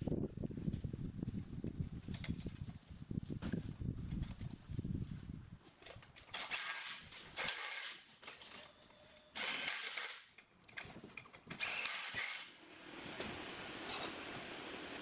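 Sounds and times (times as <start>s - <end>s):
cordless drill driving bolts: 6.3s - 8.0s, 9.3s - 10.3s, 11.5s - 12.6s.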